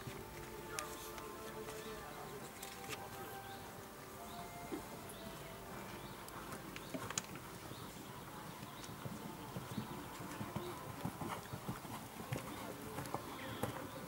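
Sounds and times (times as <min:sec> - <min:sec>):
outdoor background noise: 0:00.0 - 0:14.0
horse hoofbeats on sand: 0:08.6 - 0:14.0.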